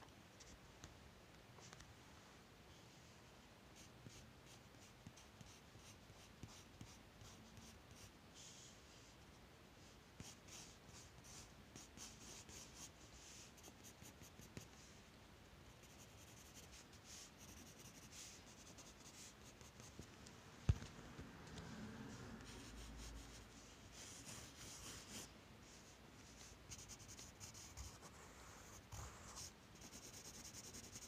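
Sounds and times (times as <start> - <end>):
pencil scratching on paper: 3.8 - 8.1, 10.2 - 14.7, 15.8 - 20.0, 22.4 - 25.3, 26.4 - 31.0.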